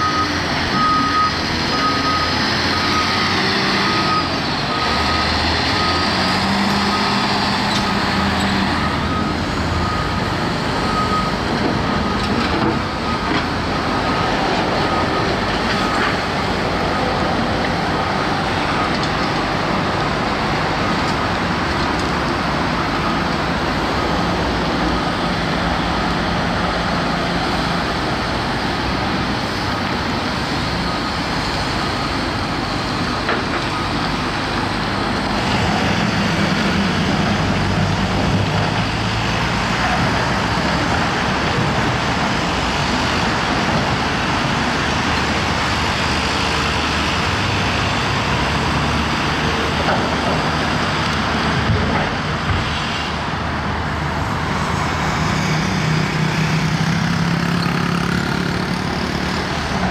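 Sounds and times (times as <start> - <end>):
dump truck running: 0.0 - 59.9
excavator running: 0.0 - 59.9.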